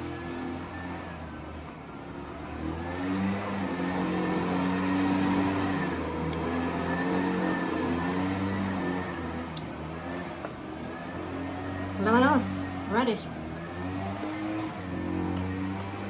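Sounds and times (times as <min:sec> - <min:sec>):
lawn mower engine running: 0:00.0 - 0:16.0.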